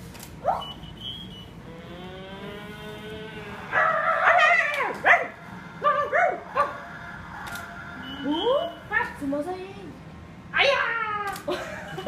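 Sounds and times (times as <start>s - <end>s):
faint drawn-out whine: 0.0s - 10.9s
dog-like barks and yelps: 0.4s - 0.8s, 3.7s - 6.9s.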